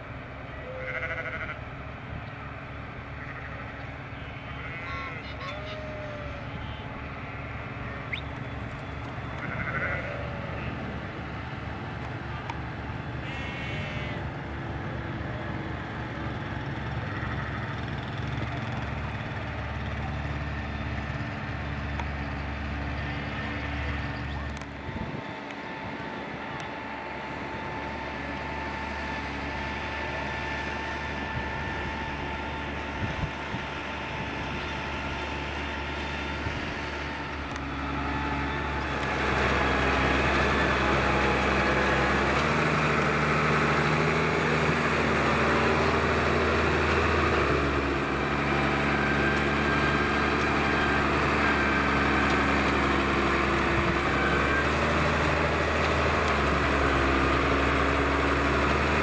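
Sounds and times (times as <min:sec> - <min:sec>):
farm vehicle engine rumble: 0:00.0 - 0:59.0
sheep bleating: 0:00.6 - 0:01.6, 0:03.2 - 0:08.1, 0:09.3 - 0:10.8, 0:13.2 - 0:14.2.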